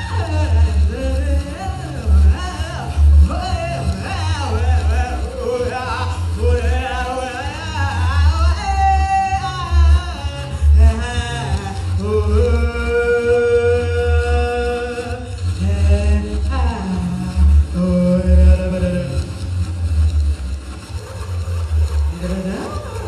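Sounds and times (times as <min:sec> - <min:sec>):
deep pulsing electronic bass: 0:00.0 - 0:23.0
woman singing wordlessly: 0:03.4 - 0:19.3.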